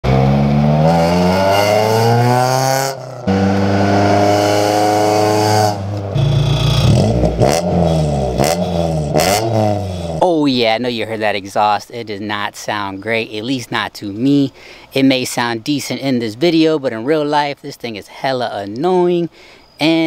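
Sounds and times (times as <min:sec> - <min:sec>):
car engine accelerating past: 0:00.0 - 0:10.1
engine revving in blips: 0:00.0 - 0:10.2.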